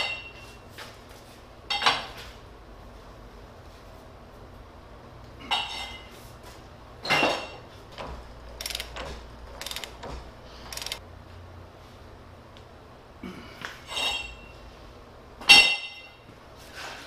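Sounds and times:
metallic wrench clanks: 8.0 - 11.0
ratchet clicking: 8.2 - 11.0.

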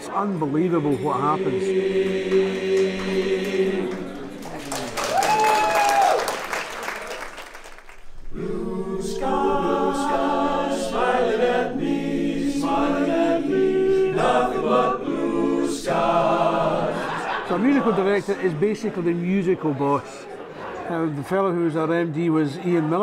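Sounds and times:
male chorus singing a cappella: 0.2 - 4.4, 8.3 - 18.2
mixed voices: 16.5 - 23.0.

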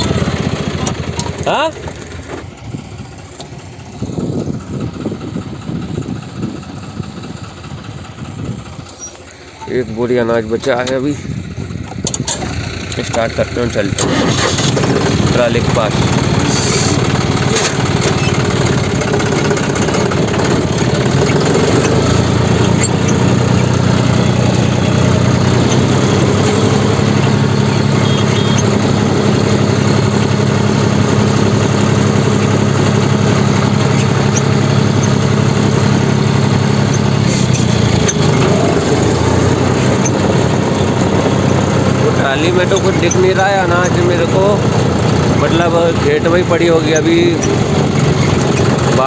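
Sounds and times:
vehicle engine running: 0.0 - 49.0.

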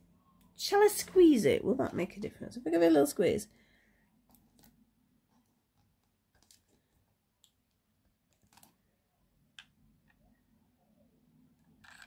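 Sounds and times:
plastic toy parts clicking: 11.7 - 12.0.

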